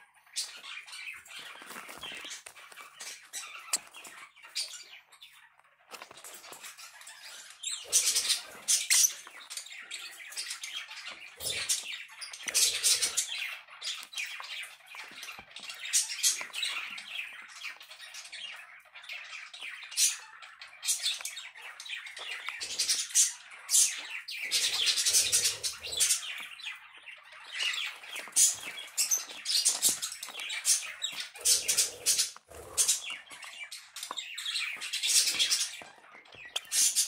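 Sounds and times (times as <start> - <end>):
parrots chirping and squawking: 0.0 - 37.0.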